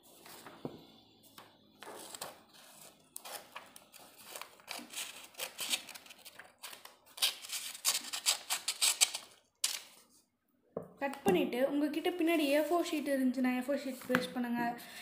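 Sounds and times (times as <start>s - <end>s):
scissors snipping paper: 2.6s - 9.9s.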